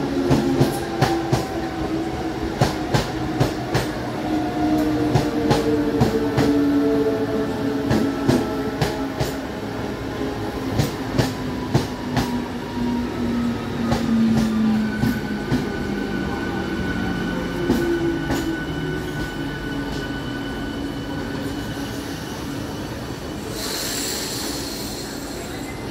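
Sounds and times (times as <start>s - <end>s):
train air hiss: 21.6s - 25.9s.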